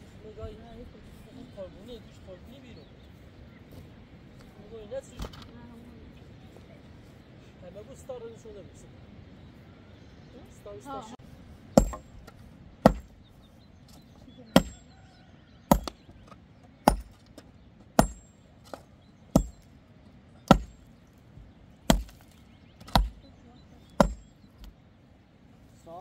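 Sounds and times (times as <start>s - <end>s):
pick striking stony soil: 11.7s - 13.2s, 13.9s - 14.9s, 15.7s - 19.8s, 20.4s - 21.2s, 21.8s - 24.8s.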